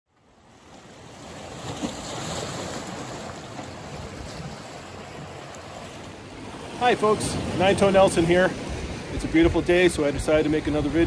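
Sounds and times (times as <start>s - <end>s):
wind: 0.1s - 11.0s
lake waves washing on shore: 0.2s - 11.0s.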